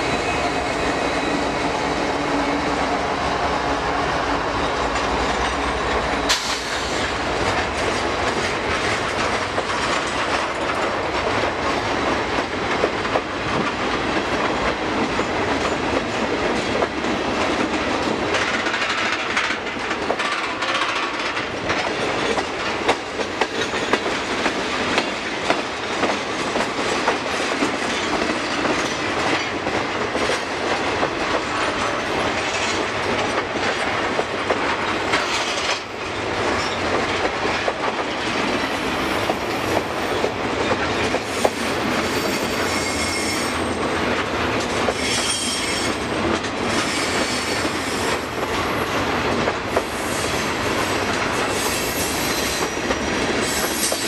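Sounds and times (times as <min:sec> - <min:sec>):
freight train wheels clacking: 0:00.0 - 0:54.0
high wheel squeal: 0:41.3 - 0:43.8, 0:44.9 - 0:46.0, 0:46.7 - 0:48.2.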